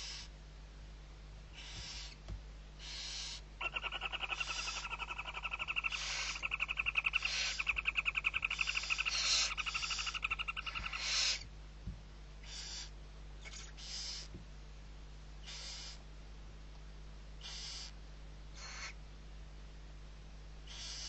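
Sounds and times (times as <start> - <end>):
owl chicks chittering trill: 0.0 - 0.3, 1.5 - 11.5, 12.4 - 14.4, 15.4 - 16.1, 17.4 - 19.0, 20.6 - 21.0
owl hisses: 0.0 - 0.3, 1.5 - 2.2, 2.8 - 11.5, 12.4 - 14.4, 15.4 - 16.0, 17.4 - 19.0, 20.6 - 21.0.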